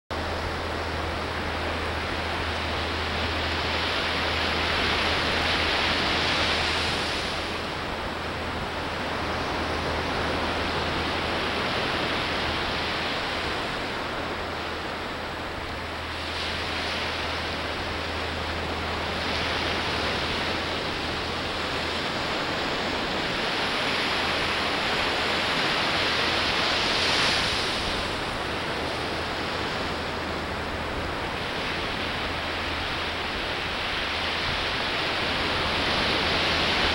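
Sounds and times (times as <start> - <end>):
ocean surf breaking on beach: 0.2 - 36.9.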